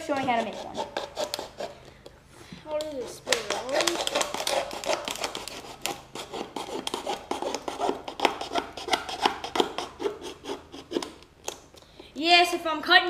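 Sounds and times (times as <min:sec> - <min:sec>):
knife scraping stick: 0:00.1 - 0:02.1, 0:02.8 - 0:11.2.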